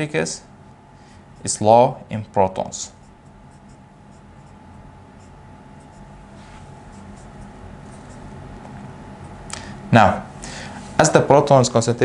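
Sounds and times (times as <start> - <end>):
marker pen writing on whiteboard: 2.9 - 6.2, 6.8 - 8.4.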